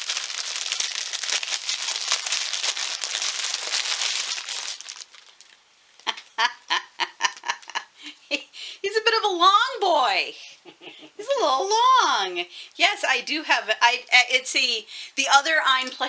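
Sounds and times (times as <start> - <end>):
plastic bag crinkling: 0.0 - 6.3
woman giggling: 6.0 - 8.5, 10.6 - 11.5.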